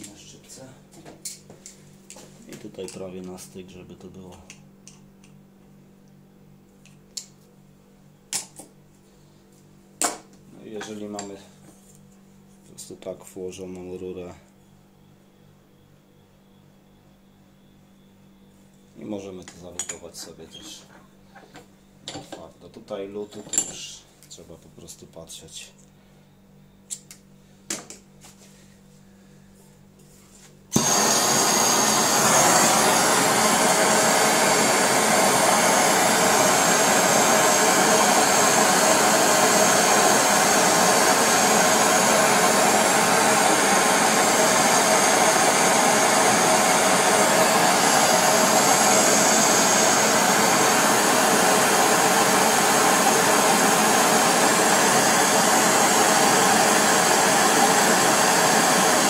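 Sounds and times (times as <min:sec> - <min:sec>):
gas torch burning with rushing hiss: 0:30.7 - 0:59.0.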